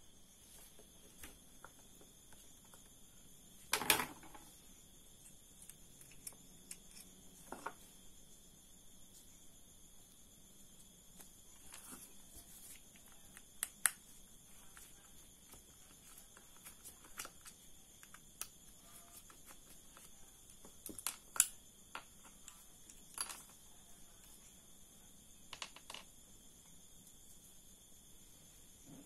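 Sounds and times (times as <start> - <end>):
crickets chirping: 0.0 - 29.0.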